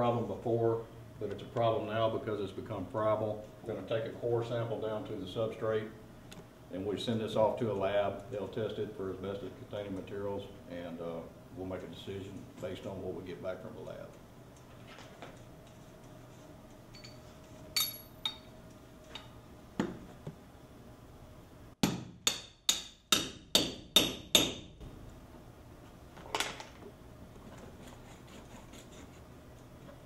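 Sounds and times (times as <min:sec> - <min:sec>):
hammer striking metal tool: 0:17.8 - 0:18.5, 0:21.8 - 0:24.7.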